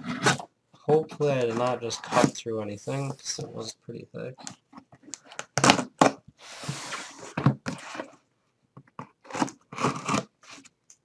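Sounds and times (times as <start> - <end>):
knife cutting tape and cardboard: 9.2 - 10.6.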